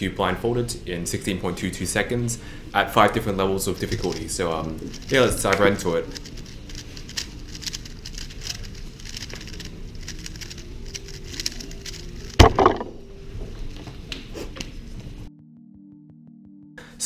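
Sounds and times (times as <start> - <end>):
puzzle cube layers clicking: 4.9 - 12.9
loud knock: 12.4 - 13.0.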